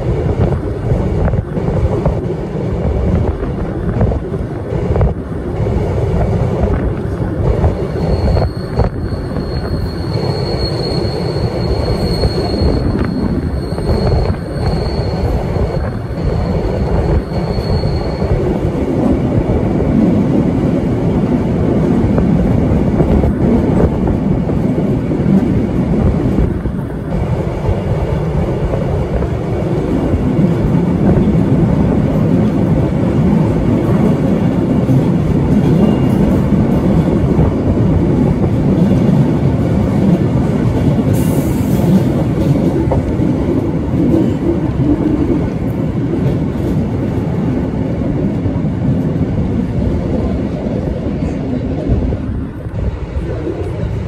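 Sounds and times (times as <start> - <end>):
electric train running on track: 0.0 - 54.0
thin high squeal: 17.1 - 18.3.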